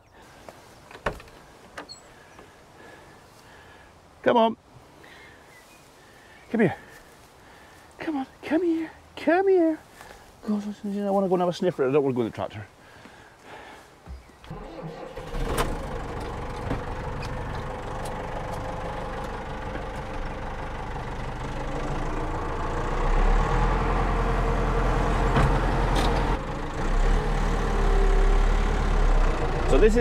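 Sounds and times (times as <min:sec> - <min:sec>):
tractor engine running: 0:14.5 - 0:30.0.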